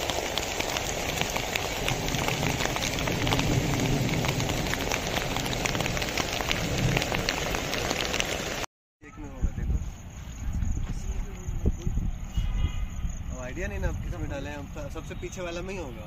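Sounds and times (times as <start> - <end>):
heavy rain falling: 0.0 - 8.7.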